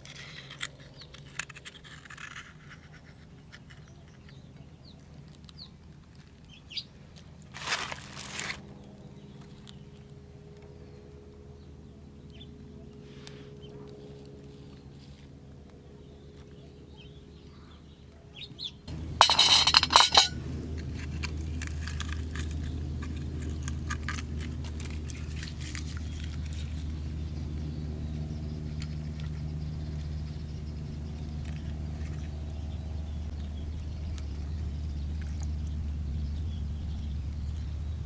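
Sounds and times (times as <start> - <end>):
plastic bag crinkling: 7.5 - 8.6
low hum: 18.9 - 38.0
sea urchins clicking: 20.6 - 27.2.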